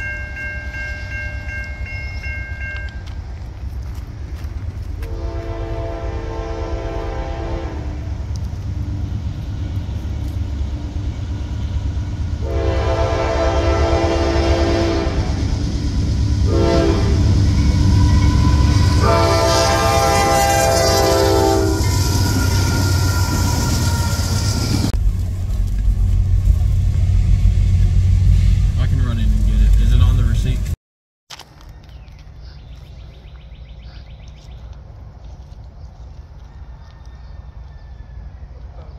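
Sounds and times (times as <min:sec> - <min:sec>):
locomotive engine rumble: 0:00.0 - 0:30.8
train rumble: 0:00.0 - 0:30.8
locomotive air horn blasts: 0:05.0 - 0:08.2, 0:12.4 - 0:15.5, 0:16.4 - 0:24.9.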